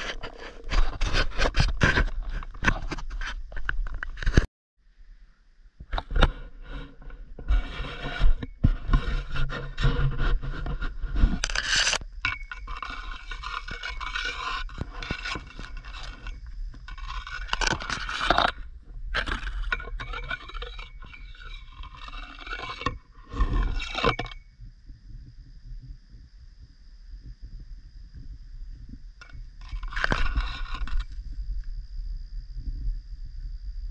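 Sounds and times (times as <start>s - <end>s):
vegetation scraping against camera: 0.0s - 4.5s, 6.0s - 24.4s, 29.2s - 31.3s.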